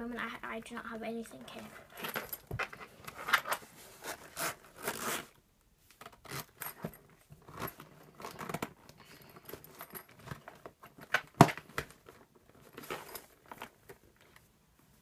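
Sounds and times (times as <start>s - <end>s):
pencil case being handled: 1.6s - 5.3s, 5.9s - 14.5s
pencil case zipper zipping: 3.2s - 5.4s.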